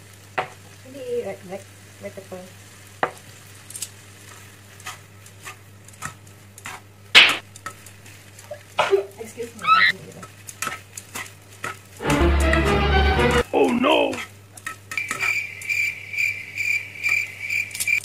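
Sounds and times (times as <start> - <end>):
faint sizzle: 0.0 - 18.0
tongs scraping and clicking on pan: 3.0 - 8.7, 9.9 - 12.0, 14.1 - 15.4.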